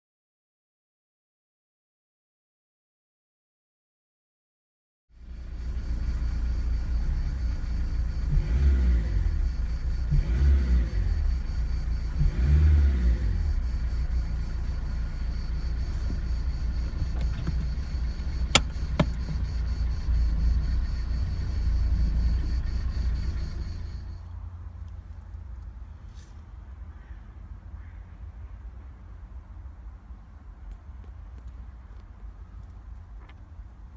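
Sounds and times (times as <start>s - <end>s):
engine revving: 5.2s - 24.4s
diesel engine idling: 5.2s - 26.0s
sharp clicks: 16.9s - 19.4s.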